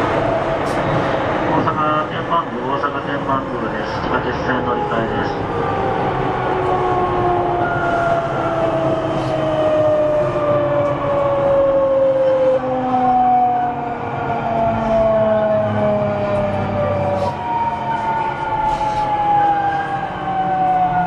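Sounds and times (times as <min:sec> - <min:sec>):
wheels rumbling on track: 0:00.0 - 0:21.0.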